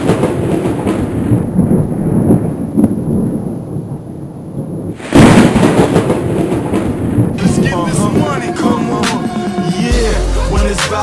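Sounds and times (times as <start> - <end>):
deep rumbling explosion: 0.0 - 9.0
loud burst: 4.9 - 9.8.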